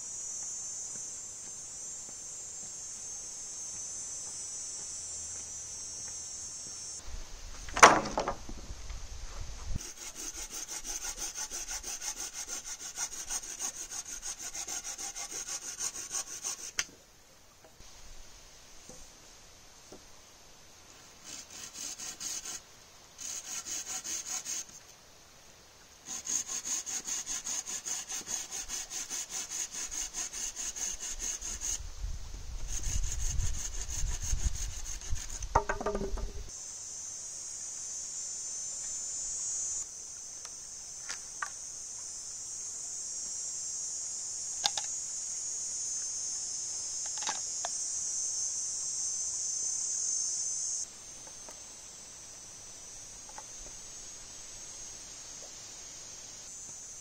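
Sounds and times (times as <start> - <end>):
insects buzzing: 0.0 - 8.8, 9.7 - 57.0
low thumps of wood: 7.6 - 8.7, 35.5 - 36.5
wood creaking: 7.7 - 8.6, 35.4 - 36.5
hand saw cutting wood: 9.8 - 16.9, 21.2 - 22.6, 23.2 - 24.8, 26.0 - 31.8, 32.6 - 36.2.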